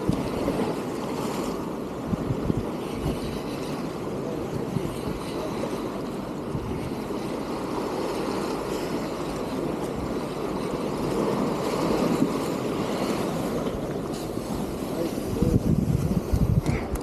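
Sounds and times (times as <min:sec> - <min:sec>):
waves splashing against rocks: 0:00.0 - 0:17.0
wind buffeting microphone: 0:00.0 - 0:17.0.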